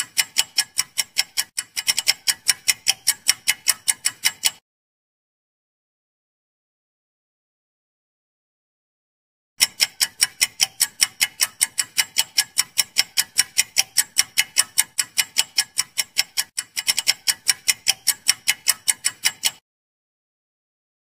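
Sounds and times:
fast clock ticking: 0.0s - 4.6s, 9.6s - 19.6s.

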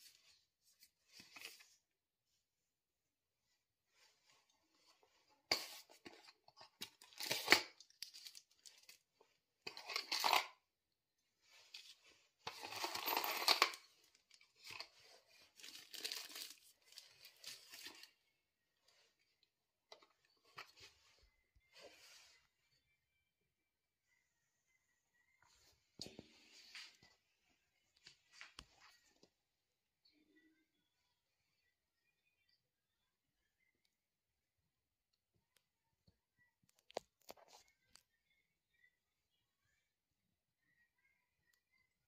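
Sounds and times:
cardboard packaging handled: 12.5s - 18.1s
plastic bag crinkling: 15.5s - 18.1s.

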